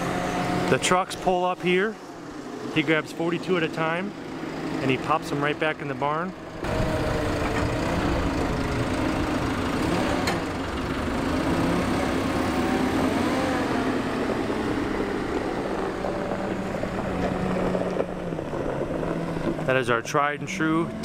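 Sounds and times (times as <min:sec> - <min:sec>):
diesel engine running under load: 0:00.0 - 0:21.0.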